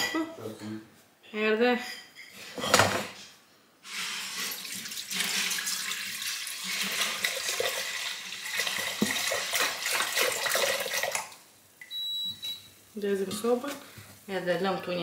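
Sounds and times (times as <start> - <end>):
wine pouring into pot: 4.2 - 11.4.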